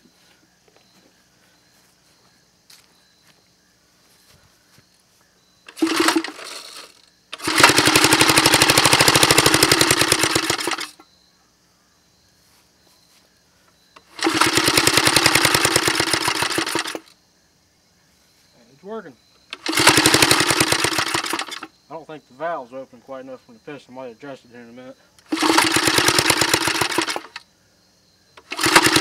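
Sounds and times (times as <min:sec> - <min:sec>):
small engine firing rapidly: 0:05.7 - 0:11.0, 0:14.0 - 0:17.1, 0:19.5 - 0:21.7, 0:25.2 - 0:27.4, 0:28.4 - 0:29.0.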